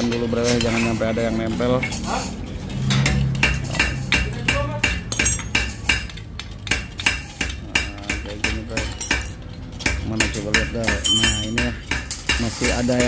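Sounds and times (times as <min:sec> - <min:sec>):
pliers clinking on metal: 0:04.9 - 0:09.8, 0:10.9 - 0:12.4.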